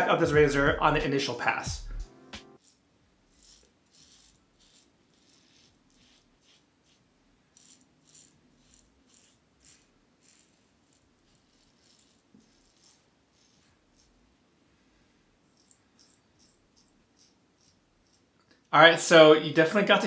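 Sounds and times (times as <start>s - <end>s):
razor scraping stubble: 2.6s - 14.2s, 15.5s - 18.3s.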